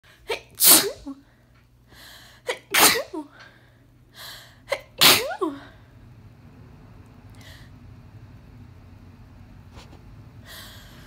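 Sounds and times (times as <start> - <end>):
woman sneezing: 0.3 - 1.2, 2.5 - 3.4, 4.7 - 5.7.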